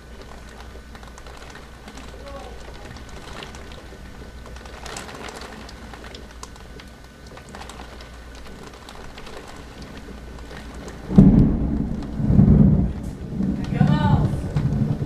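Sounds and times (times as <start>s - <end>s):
heavy rain pattering: 0.0s - 15.0s
loud low rumble: 11.0s - 15.0s.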